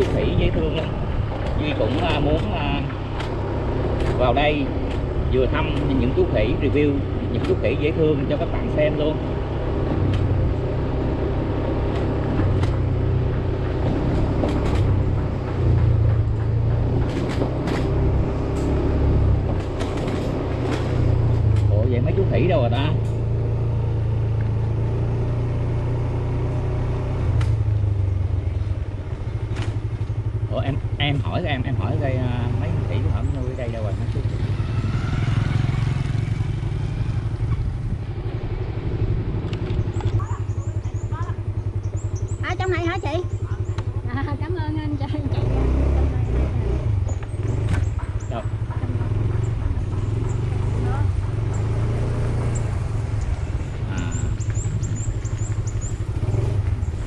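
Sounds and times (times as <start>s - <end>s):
wind rumble: 0.0s - 22.3s
motorbike engine: 0.0s - 57.0s
sharp clicks and knocks: 1.3s - 4.2s, 11.9s - 21.8s.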